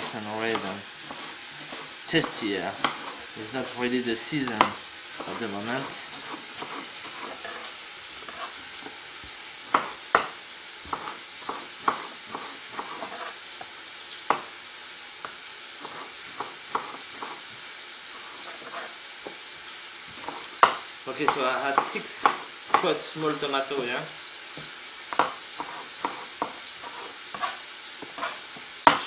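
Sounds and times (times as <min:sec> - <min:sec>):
vegetables sizzling in oil: 0:00.0 - 0:29.0
knife slicing on wooden board: 0:00.5 - 0:03.3, 0:06.1 - 0:08.6, 0:10.9 - 0:13.4, 0:18.2 - 0:19.0, 0:25.2 - 0:29.0.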